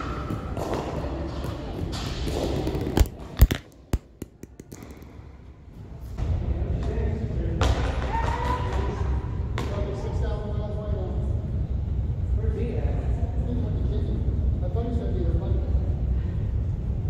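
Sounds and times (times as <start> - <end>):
ball bouncing on wooden floor: 0.0 - 5.2.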